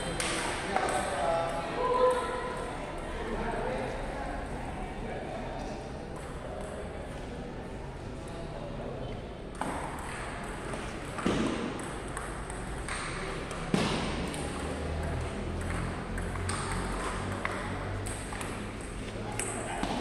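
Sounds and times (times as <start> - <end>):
table tennis balls clicking: 9.5 - 20.0.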